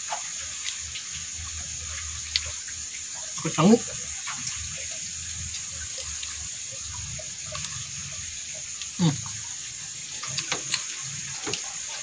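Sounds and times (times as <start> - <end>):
running water: 0.0 - 12.0
eating and chewing clicks: 1.9 - 2.6, 10.2 - 12.0.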